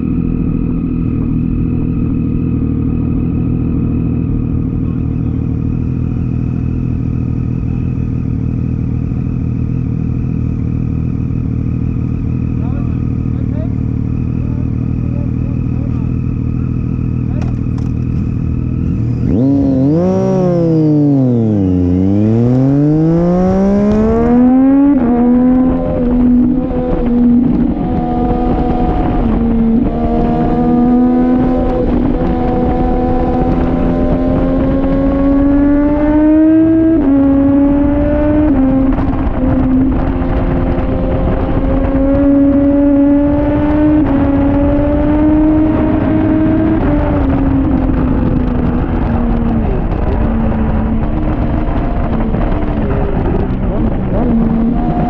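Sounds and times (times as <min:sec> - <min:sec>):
motorcycle engine revving: 0:00.0 - 0:55.0
wind rushing: 0:19.4 - 0:55.0.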